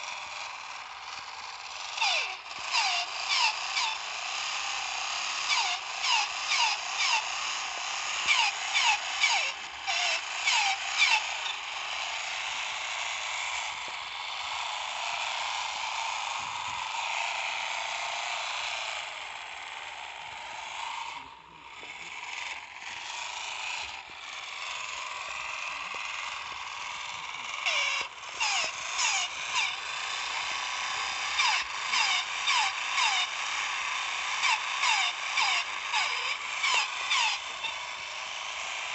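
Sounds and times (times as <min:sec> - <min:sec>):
toy motor and gears whirring: 0:00.0 - 0:38.9
squeaky toy chirps: 0:02.0 - 0:04.0.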